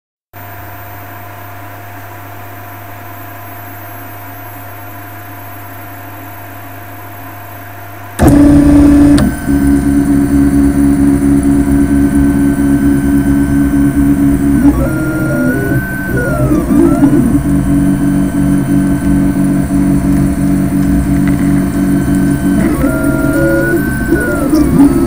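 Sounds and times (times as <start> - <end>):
printer low hum: 8.2 - 25.0
printer motors whirring: 8.2 - 25.0.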